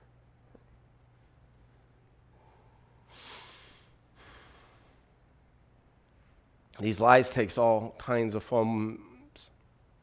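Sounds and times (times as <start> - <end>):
soft breaths: 2.1 - 5.4.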